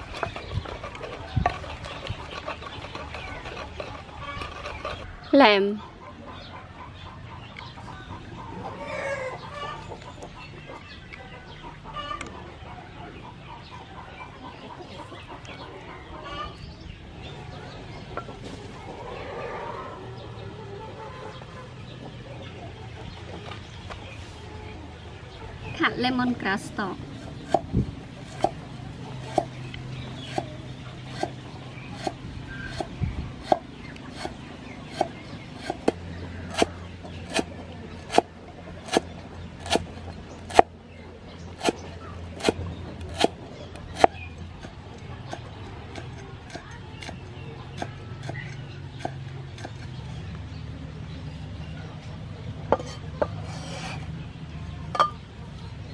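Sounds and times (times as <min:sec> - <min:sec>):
chickens clucking: 0:00.0 - 0:55.9
cleaver chopping on wooden board: 0:32.0 - 0:39.9, 0:40.5 - 0:40.7, 0:41.6 - 0:41.8, 0:42.4 - 0:43.4, 0:44.0 - 0:50.0.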